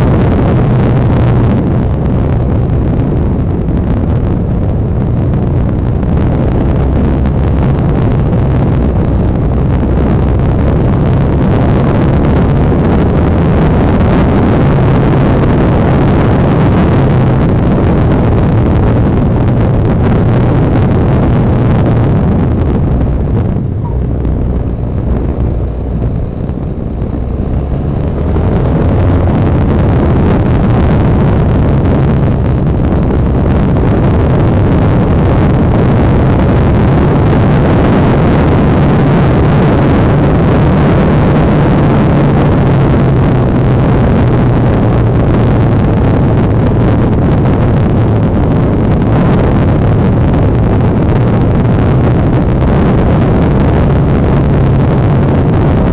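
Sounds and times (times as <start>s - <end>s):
motorcycle engine running: 0.0s - 55.9s.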